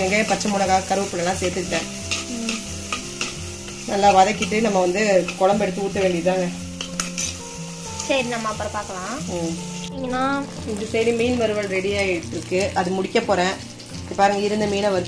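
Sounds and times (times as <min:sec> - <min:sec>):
background music melody: 0:00.0 - 0:15.0
vegetables sizzling in oil: 0:00.0 - 0:15.0
metal ladle scraping pot: 0:06.7 - 0:07.6.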